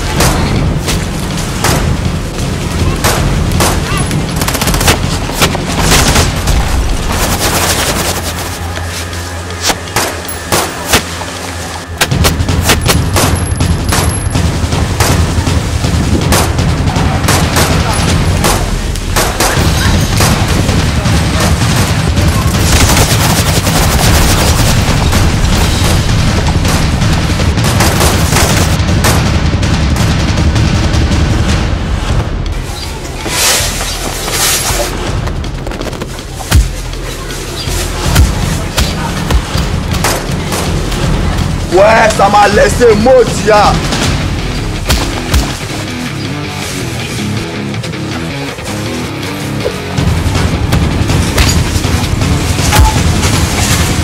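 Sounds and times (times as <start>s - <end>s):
deep rumble: 0.0s - 41.8s.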